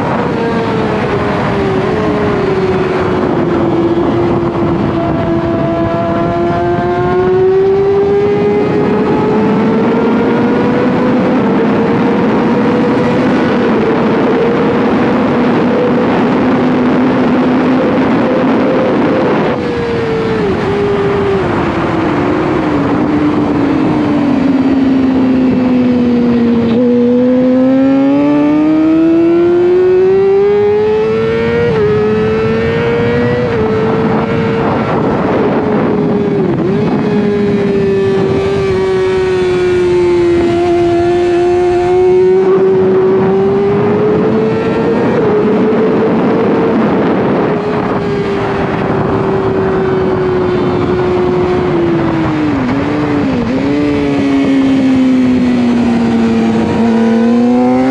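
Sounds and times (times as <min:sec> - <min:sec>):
sport bike engine revving: 0:00.0 - 0:57.9
heavy rush of noise: 0:31.0 - 0:57.9.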